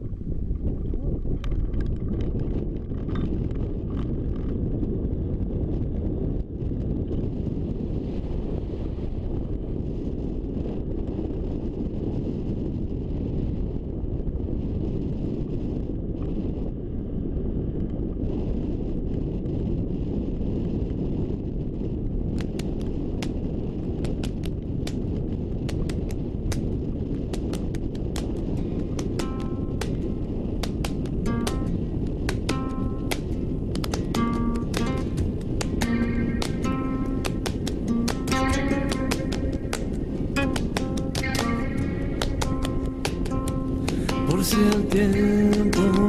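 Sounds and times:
wind buffeting microphone: 0:00.0 - 0:46.0
sharp clicks: 0:27.3 - 0:46.0.

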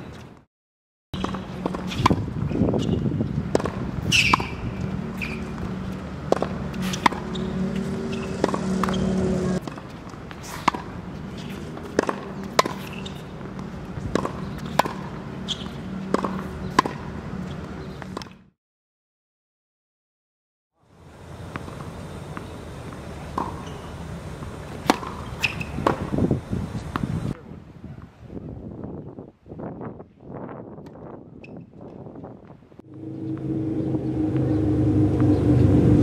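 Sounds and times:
ball bouncing on hard court: 0:01.2 - 0:05.7, 0:06.3 - 0:09.8
tennis ball struck by racket: 0:01.2 - 0:18.4, 0:21.5 - 0:26.2
steady low hum: 0:32.8 - 0:36.0.

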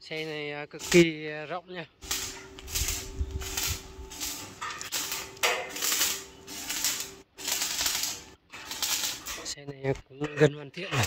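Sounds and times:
hissing clattering bursts: 0:00.0 - 0:01.2, 0:02.0 - 0:09.6
steady hum: 0:01.9 - 0:08.4.

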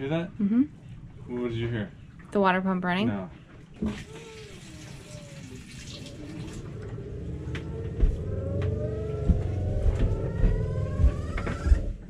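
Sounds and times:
whine in water plumbing: 0:03.8 - 0:12.0.

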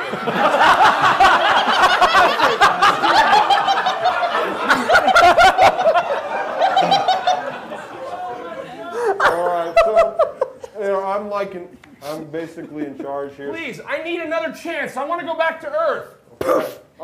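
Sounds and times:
audience laughing: 0:00.0 - 0:10.8.

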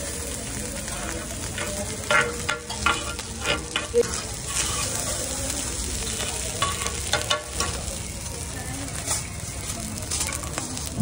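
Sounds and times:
sizzle of frying: 0:00.0 - 0:11.0
metal spatula scraping griddle: 0:00.8 - 0:07.8.

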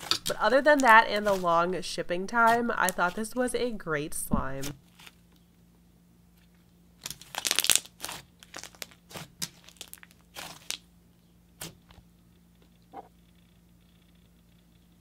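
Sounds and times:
slime crackling and popping: 0:07.0 - 0:10.9.

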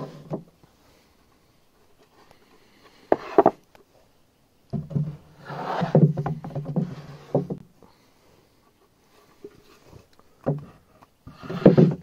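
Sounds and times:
plywood boards scraping: 0:00.0 - 0:00.5, 0:01.9 - 0:03.6, 0:04.8 - 0:07.6, 0:09.2 - 0:12.0.

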